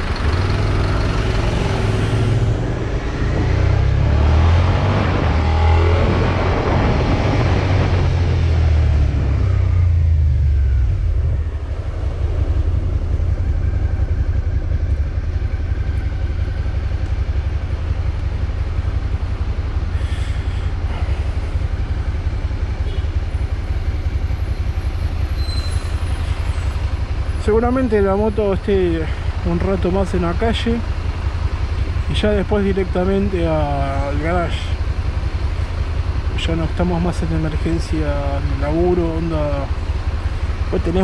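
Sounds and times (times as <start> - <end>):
motorcycle riding: 0.0 - 41.0
wind rush: 1.9 - 13.0
motorcycle engine idling: 9.8 - 41.0.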